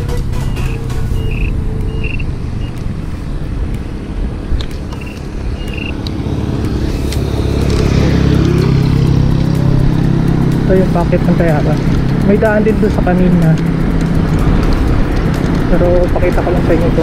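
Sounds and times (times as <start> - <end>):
electric scooter riding on concrete: 0.0 - 17.0
motor tricycle engine rumble: 0.0 - 17.0
wind noise: 0.0 - 17.0.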